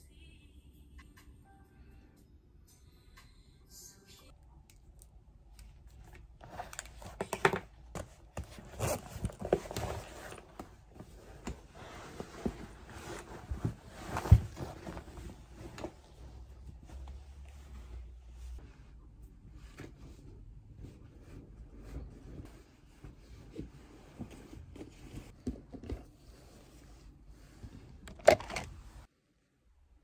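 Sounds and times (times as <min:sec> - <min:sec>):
objects shuffling: 0:06.4 - 0:18.6
fabric rustling: 0:08.3 - 0:18.8.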